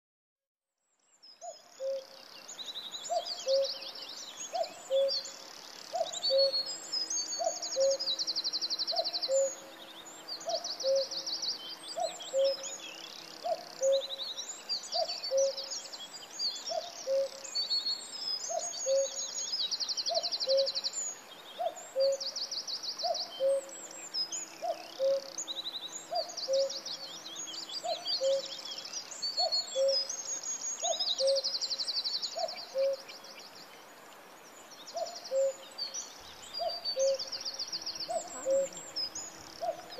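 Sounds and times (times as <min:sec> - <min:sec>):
cuckoo calling: 0:01.4 - 0:02.1, 0:03.1 - 0:03.8, 0:04.5 - 0:05.2, 0:05.9 - 0:06.7, 0:07.4 - 0:08.1, 0:08.9 - 0:09.6, 0:10.5 - 0:11.2, 0:12.0 - 0:12.8, 0:13.4 - 0:14.2, 0:15.0 - 0:15.7, 0:16.7 - 0:17.5, 0:18.5 - 0:19.3, 0:20.1 - 0:20.8, 0:21.6 - 0:22.3, 0:23.0 - 0:23.7, 0:24.6 - 0:25.4, 0:26.1 - 0:26.8, 0:27.8 - 0:28.6, 0:29.3 - 0:31.6, 0:32.3 - 0:33.1, 0:35.0 - 0:35.7, 0:36.5 - 0:39.0, 0:39.6 - 0:39.9
small birds trilling: 0:01.4 - 0:39.9.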